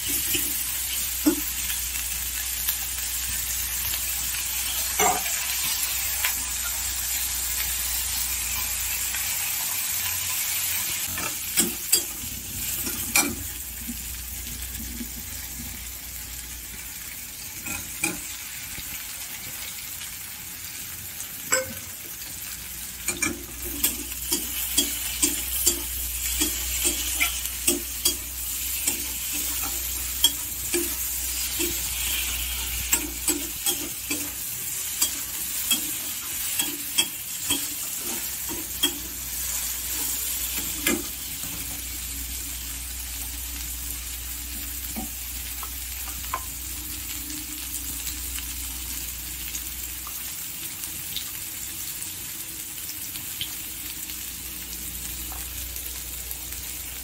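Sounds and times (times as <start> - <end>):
vegetables sizzling in oil: 0.0 - 57.0
spatula clinking against pan: 21.5 - 21.8, 35.0 - 37.8.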